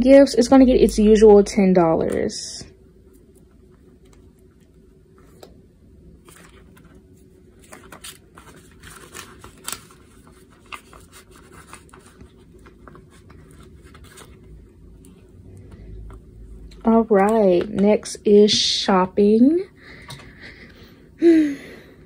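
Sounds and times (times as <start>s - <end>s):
faint steady hum: 0.0s - 22.0s
paper and plastic rustling: 6.2s - 16.2s.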